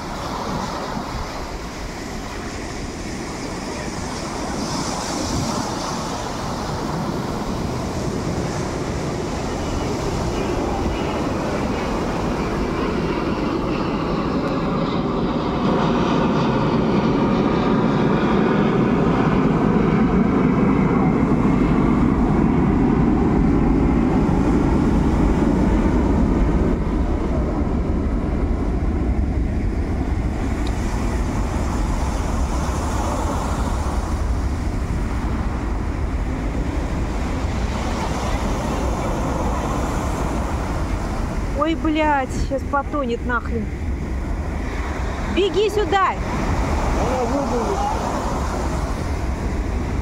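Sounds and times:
sea surf on pebble beach: 0.0 - 13.2, 30.2 - 50.0.

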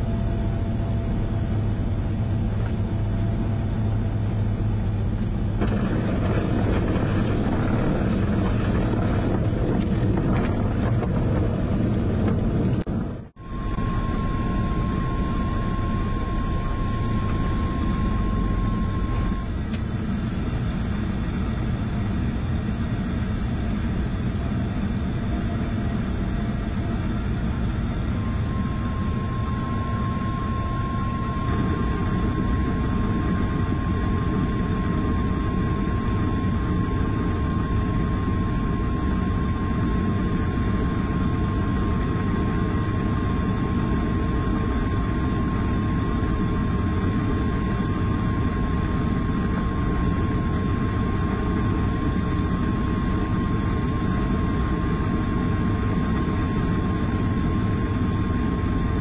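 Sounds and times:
aircraft engine and propeller droning: 0.0 - 59.0
thin steady high tone: 13.4 - 19.6, 28.2 - 36.0.

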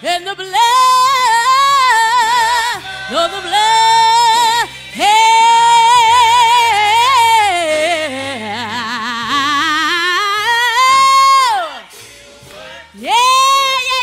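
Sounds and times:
woman singing gospel: 0.0 - 14.0.

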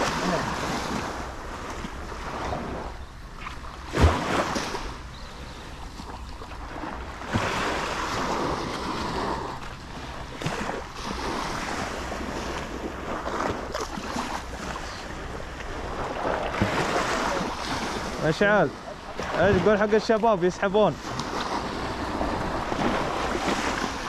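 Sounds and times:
small waves breaking on shore: 0.0 - 24.0
wind buffeting microphone: 21.1 - 24.0.

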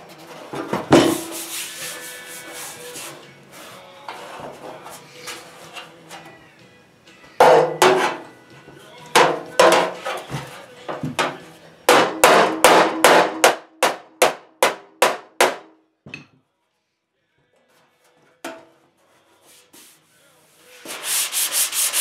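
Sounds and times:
hammer striking steel panel: 7.4 - 8.2, 9.2 - 10.2, 11.2 - 15.7.

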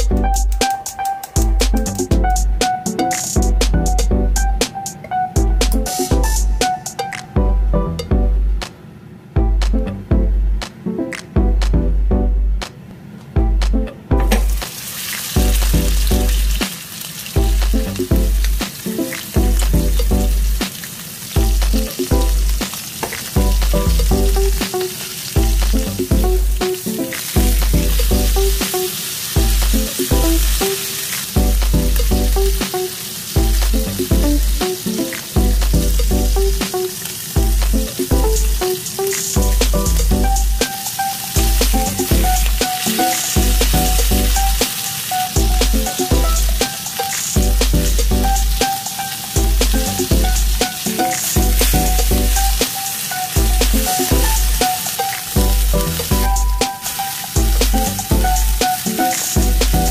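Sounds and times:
background music with bass and plucks: 0.0 - 8.7, 9.4 - 12.7, 13.4 - 14.6, 15.4 - 16.7, 17.4 - 20.7, 21.4 - 22.7, 23.4 - 24.8, 25.4 - 28.8, 29.4 - 30.7, 31.4 - 32.8, 33.4 - 36.8, 37.4 - 40.8, 41.4 - 44.7, 45.4 - 52.7, 53.4 - 59.9
steak sizzling in a frying pan: 14.4 - 59.9.

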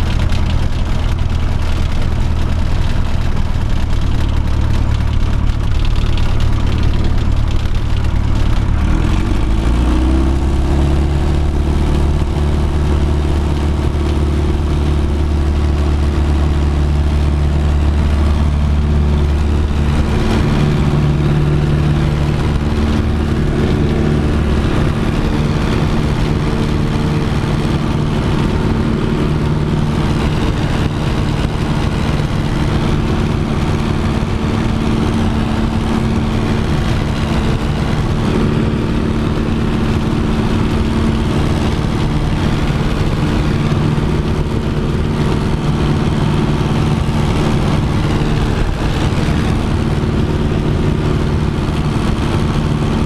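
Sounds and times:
airplane engine droning: 0.0 - 53.0.

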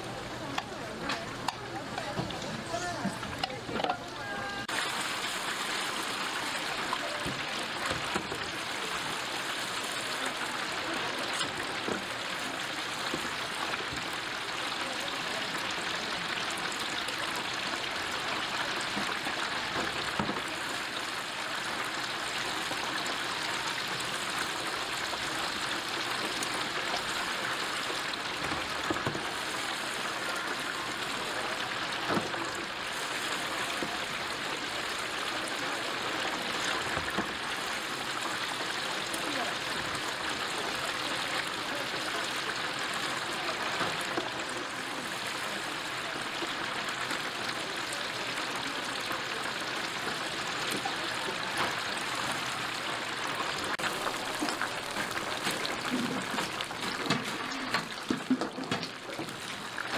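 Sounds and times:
chicken deep-frying in oil: 0.0 - 59.9.

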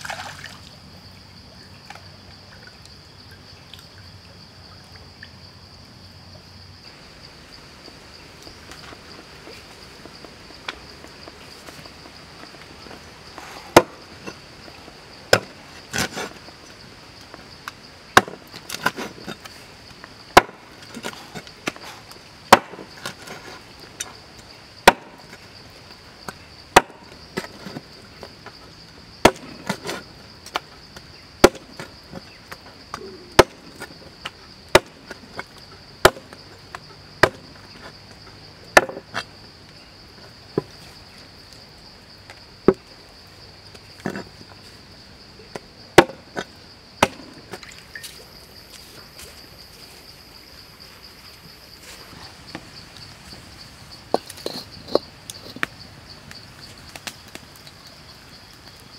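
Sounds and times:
insect drone: 0.0 - 58.9
cleaver chopping on wooden block: 13.8 - 14.0, 18.2 - 18.9, 20.4 - 20.6, 22.5 - 23.2, 24.8 - 25.2, 26.8 - 27.5, 31.4 - 31.7, 33.4 - 33.6, 34.7 - 35.0, 36.0 - 36.3, 37.2 - 37.4, 38.8 - 39.0, 46.0 - 46.2, 47.0 - 47.4.

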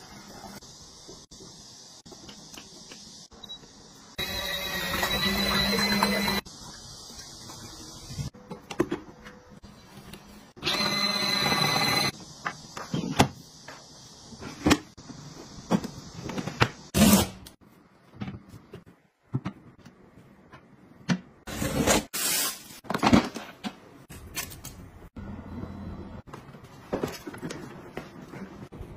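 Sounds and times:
small machine humming: 4.2 - 6.4.

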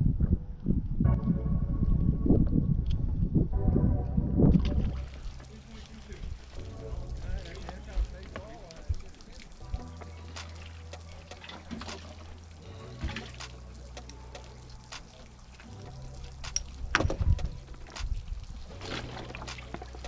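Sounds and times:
water splashing and trickling: 4.4 - 20.0.

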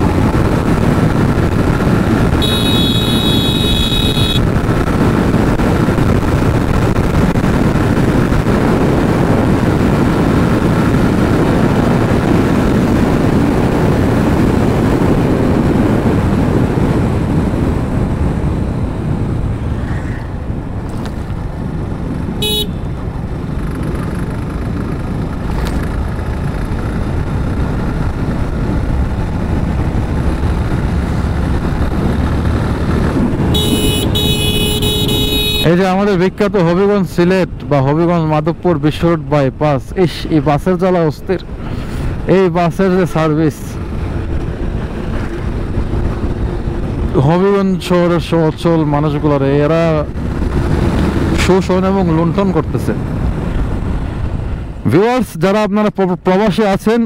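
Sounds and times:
motorcycle riding rush: 0.0 - 57.0
vehicle horn: 2.4 - 4.5, 22.4 - 22.9, 33.5 - 35.8.

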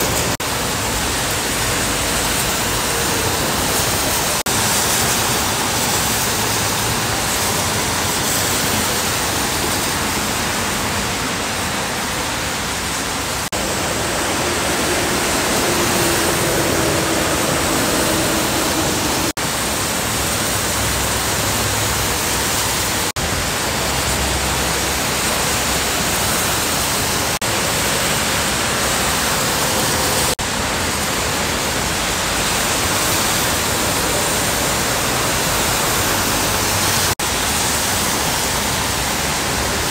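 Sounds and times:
heavy rain hissing: 0.0 - 39.9
tyres spraying on wet road: 0.0 - 39.9
passing trucks engine: 13.5 - 19.4.

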